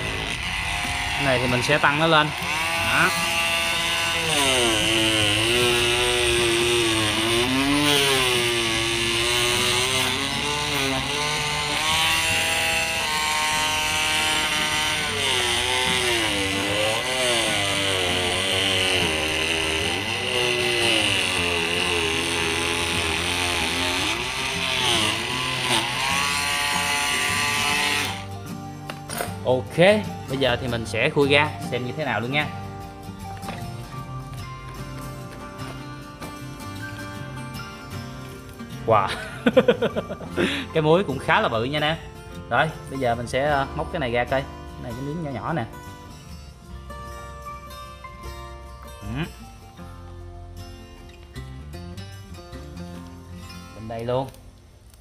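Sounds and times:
oscillating multi-tool cutting husk: 0:00.0 - 0:32.6.

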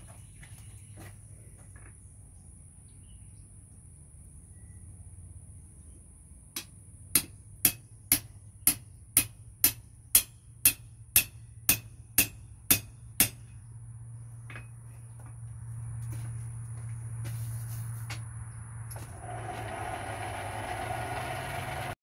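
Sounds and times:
hammer striking metal on anvil: 0:06.6 - 0:13.6.

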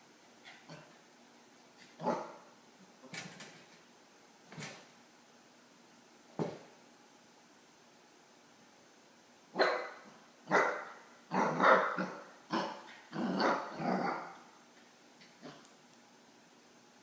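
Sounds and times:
puppy barking: 0:02.0 - 0:02.5, 0:09.6 - 0:14.4.

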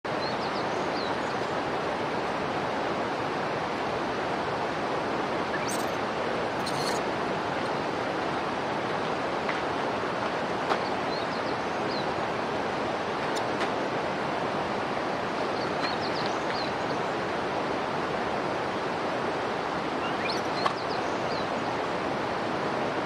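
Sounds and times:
running water rushing: 0:00.1 - 0:23.0
faint high chirps: 0:05.5 - 0:06.0.

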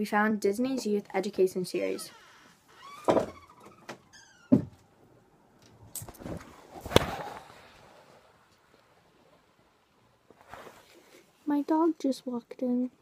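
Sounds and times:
door knocking and thumping: 0:02.9 - 0:04.8.

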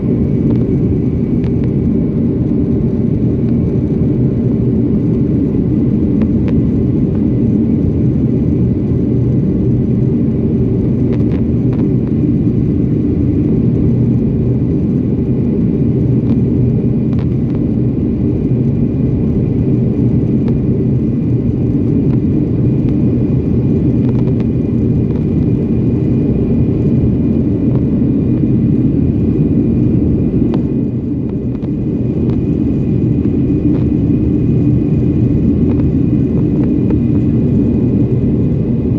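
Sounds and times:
jet engine and airflow roar: 0:00.0 - 0:38.9.

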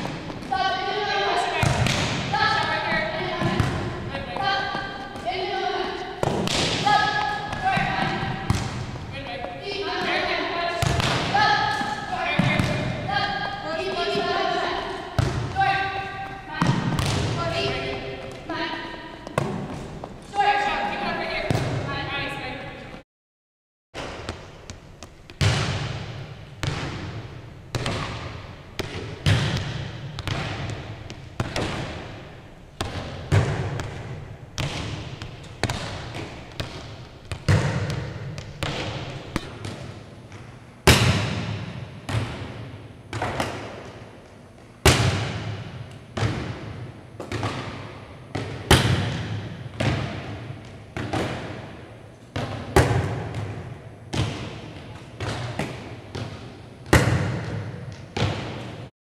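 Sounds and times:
volleyballs hit and bouncing: 0:00.0 - 0:22.1, 0:24.0 - 0:58.9.

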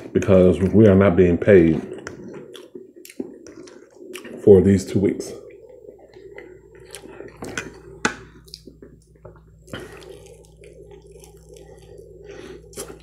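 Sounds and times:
chewing and wet mouth smacking: 0:01.8 - 0:04.4, 0:05.4 - 0:13.0.

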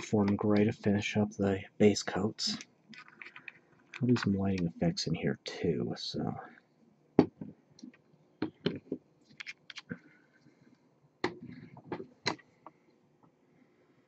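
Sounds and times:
light clicks and taps: 0:02.5 - 0:04.8.

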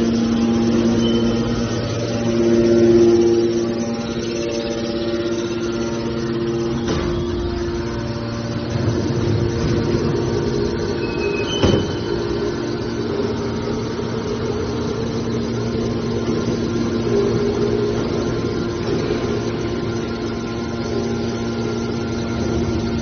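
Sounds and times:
metal baler machine hum: 0:00.0 - 0:23.0.

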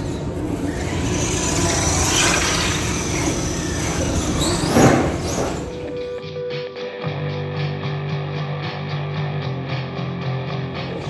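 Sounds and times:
toy truck motors whining: 0:00.0 - 0:06.2.

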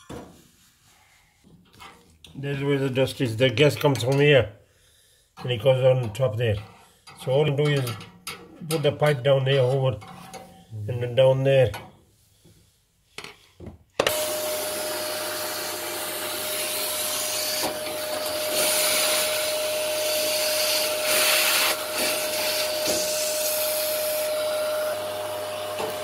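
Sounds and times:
vacuum cleaner whining: 0:14.0 - 0:26.0.

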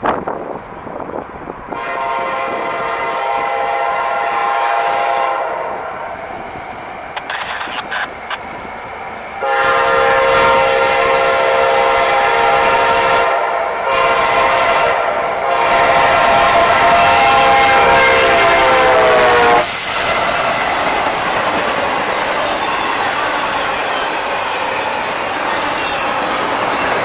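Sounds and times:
train passing on rails: 0:00.0 - 0:27.0
locomotive air horn blasts: 0:01.7 - 0:05.7, 0:09.4 - 0:19.8.

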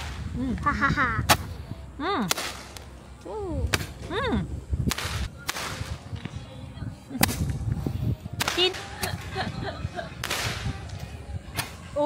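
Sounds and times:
fireworks bangs: 0:04.8 - 0:06.4, 0:08.3 - 0:10.9.

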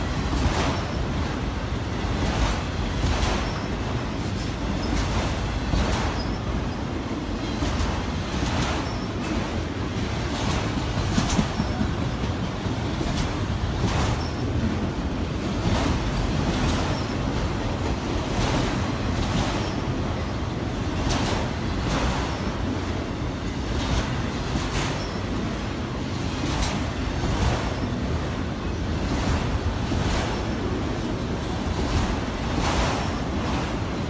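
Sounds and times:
train wheels rumbling on rail: 0:00.0 - 0:34.0
wheels clacking: 0:02.1 - 0:20.3.

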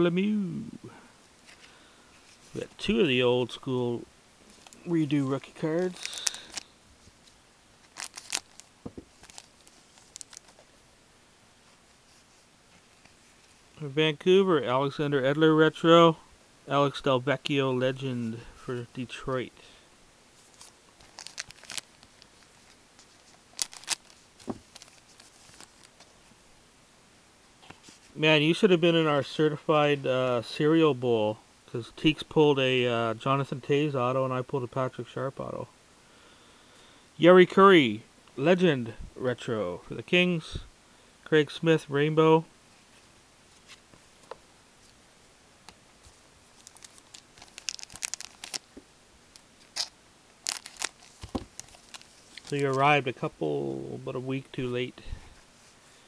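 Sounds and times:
plastic wrapper crinkling and tearing: 0:04.6 - 0:06.7, 0:07.8 - 0:10.6, 0:20.4 - 0:26.1, 0:46.5 - 0:52.9.

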